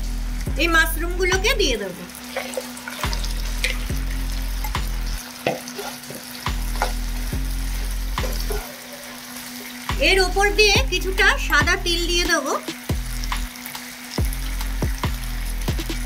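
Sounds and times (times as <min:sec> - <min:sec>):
low hum: 0:00.0 - 0:05.2
sauce sizzling: 0:00.0 - 0:16.0.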